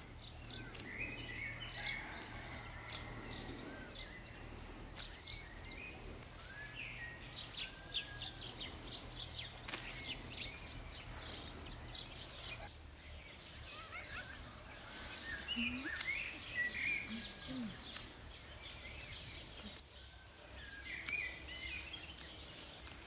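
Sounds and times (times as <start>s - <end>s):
small birds chirping: 0.0s - 23.0s
soft rustle of herbs: 0.0s - 23.0s
sharp snaps of herbs picked: 0.5s - 1.3s, 2.9s - 3.4s, 4.9s - 5.4s, 9.4s - 10.2s, 12.0s - 12.7s, 15.7s - 16.5s, 17.2s - 19.8s, 20.6s - 23.0s.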